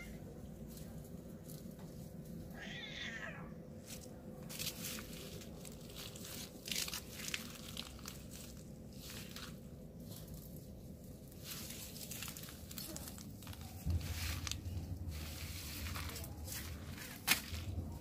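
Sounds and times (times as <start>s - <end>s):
rustling in dry grass: 3.8s - 18.0s.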